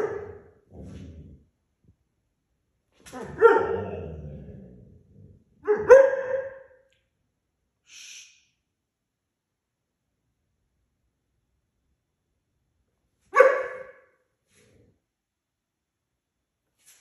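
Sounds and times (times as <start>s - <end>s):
puppy barking loudly: 0.0s - 0.5s, 3.2s - 4.1s, 5.6s - 6.8s, 13.3s - 14.0s.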